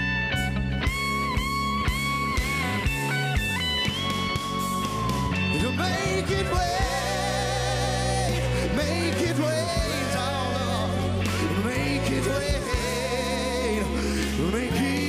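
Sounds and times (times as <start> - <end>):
bass: 0.0 - 15.0
electric guitar long note: 0.0 - 15.0
person singing: 5.5 - 15.0.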